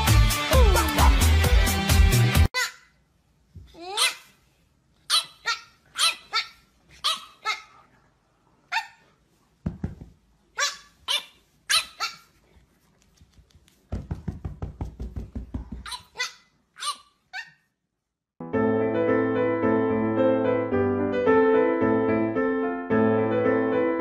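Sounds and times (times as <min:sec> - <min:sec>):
dog barking: 0:05.1 - 0:07.8, 0:10.6 - 0:12.3.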